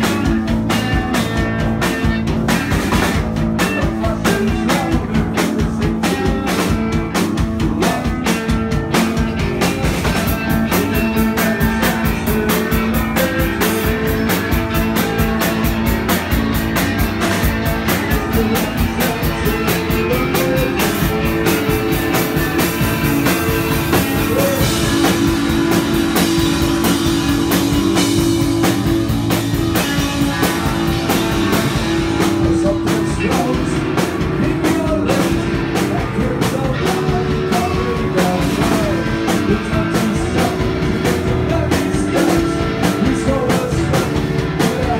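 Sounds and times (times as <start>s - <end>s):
drum kit beat: 0.0s - 44.9s
electric guitar: 0.0s - 44.9s
person singing into microphone: 18.1s - 22.5s, 32.4s - 44.9s.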